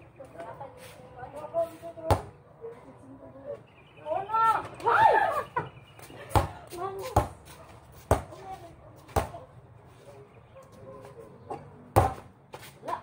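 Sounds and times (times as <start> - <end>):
basketball bouncing on concrete: 2.0 - 2.4, 6.3 - 9.5, 11.9 - 12.4.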